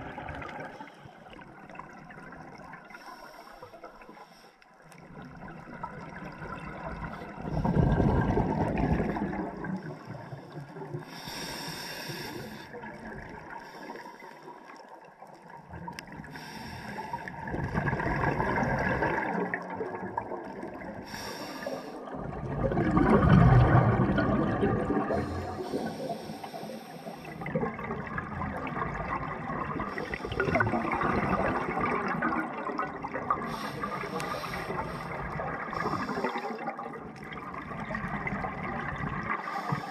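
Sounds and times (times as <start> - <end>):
exhaled bubbles gurgling: 0.0 - 39.9
regulator inhale hiss: 2.8 - 4.6, 9.9 - 12.8, 13.5 - 14.5, 16.2 - 17.4, 21.0 - 22.1, 25.1 - 27.5, 33.4 - 36.6, 39.4 - 39.9.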